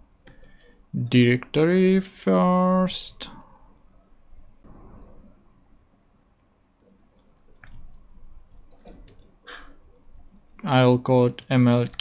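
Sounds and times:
computer keyboard clicks: 0.2s - 0.8s, 6.4s - 9.4s, 11.2s - 12.0s.

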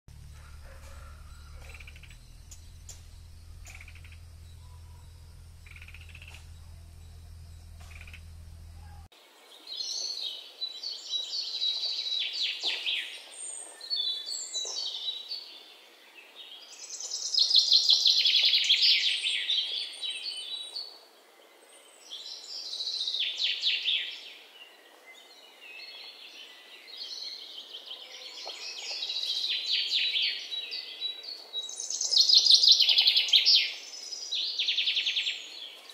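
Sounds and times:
low steady hum: 0.1s - 9.1s
nestlings chattering calls: 0.1s - 9.1s
faint ticks: 0.2s - 9.1s.

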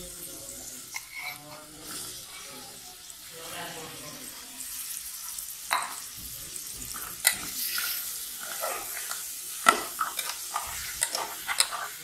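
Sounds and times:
meat sizzling in hot oil: 0.0s - 12.0s
metal spoon scraping a pan: 0.7s - 2.8s, 4.6s - 12.0s
spoon knocking on pan: 5.7s - 7.5s.

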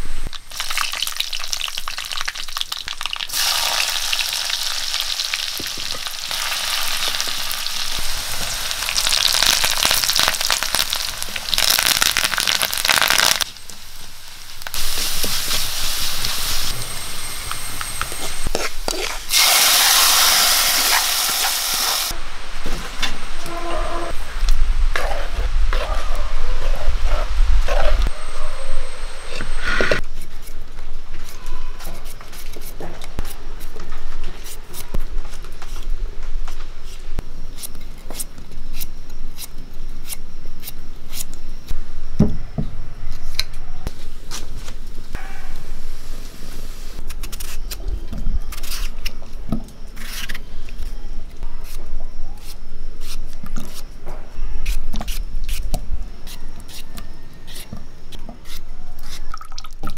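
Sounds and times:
spices sizzling in oil: 0.3s - 22.2s
hot oil poured into dal sizzling: 0.5s - 13.4s, 19.3s - 22.1s
knife scraping potato skin: 47.0s - 47.8s, 48.5s - 49.2s, 50.0s - 50.9s, 51.6s - 53.9s, 54.6s - 59.3s.

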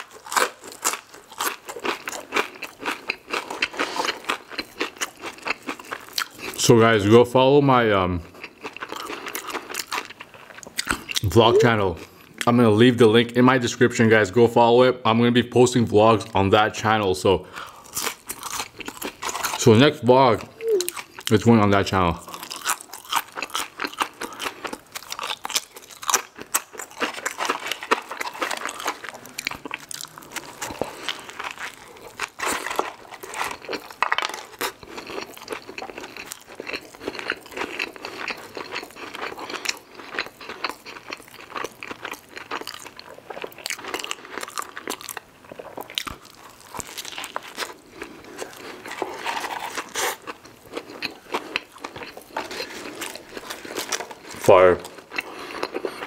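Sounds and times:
wet chewing: 0.0s - 6.6s, 8.3s - 12.5s, 22.3s - 56.0s
crunching chips: 0.0s - 6.7s, 8.4s - 11.5s, 17.6s - 19.9s, 22.2s - 56.0s.

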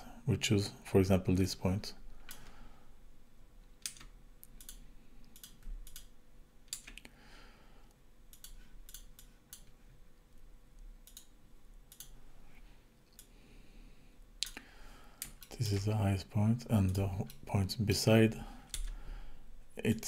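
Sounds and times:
faint steady hum: 0.0s - 20.0s
mouse and keyboard clicking: 3.8s - 6.1s.

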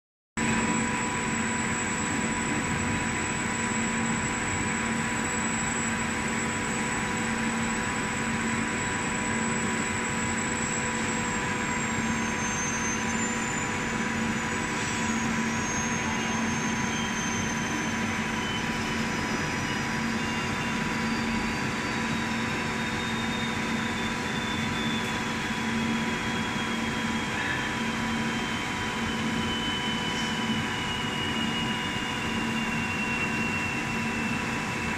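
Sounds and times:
faint high whine: 0.4s - 34.9s
machine fan whoosh: 0.4s - 34.9s.

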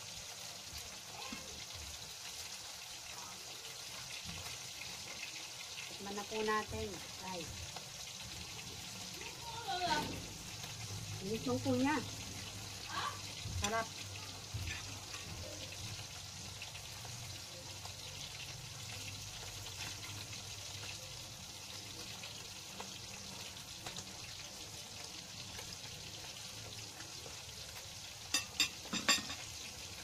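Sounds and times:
fritters sizzling in hot oil: 0.0s - 30.0s.

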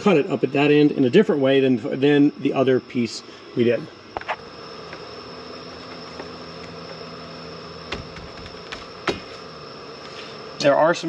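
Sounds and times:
steady background hum: 0.0s - 11.0s
door seal knocks: 7.9s - 9.3s.

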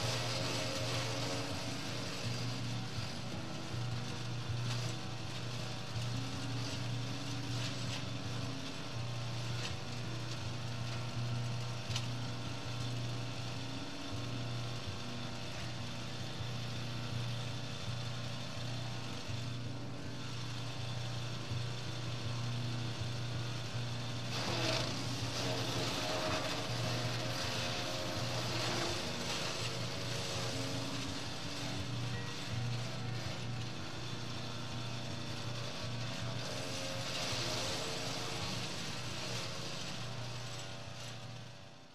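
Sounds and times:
branches being ground up: 0.0s - 3.2s, 24.2s - 33.6s
chipper shredder engine running: 0.0s - 41.9s.

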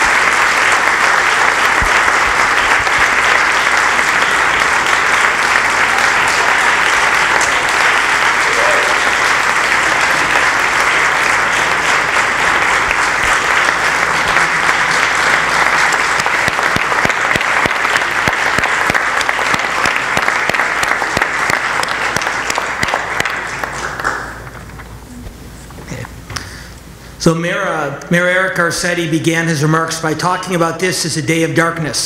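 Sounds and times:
audience applauding: 0.0s - 24.7s.

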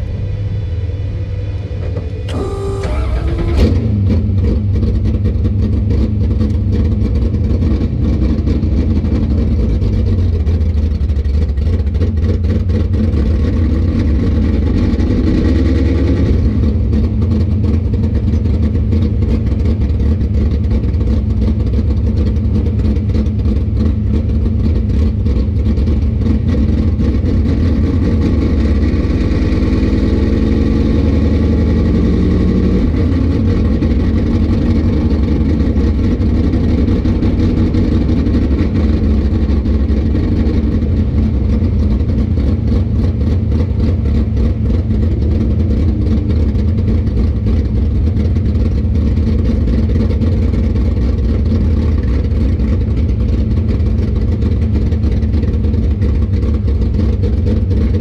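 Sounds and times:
car engine running: 0.0s - 58.0s
car engine cranking: 1.7s - 7.1s.

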